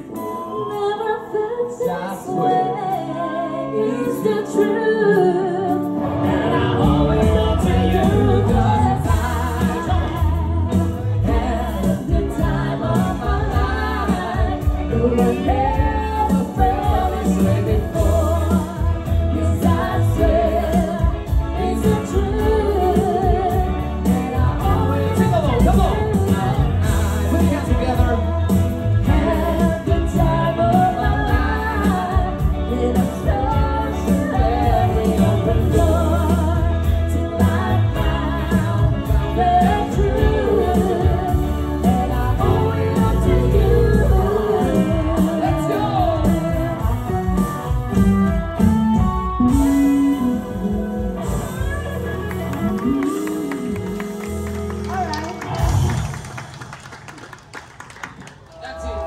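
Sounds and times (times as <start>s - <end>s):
man and woman singing: 0.0s - 47.8s
electric guitar: 0.0s - 56.7s
keyboard: 0.0s - 56.8s
drums: 4.0s - 57.6s
bass line: 5.9s - 56.6s.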